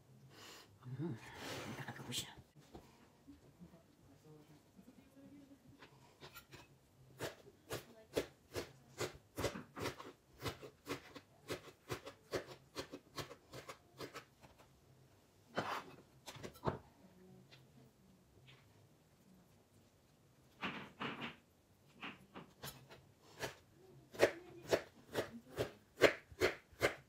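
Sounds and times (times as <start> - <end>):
knife chopping on plastic board: 7.2 - 14.3, 23.4 - 27.0.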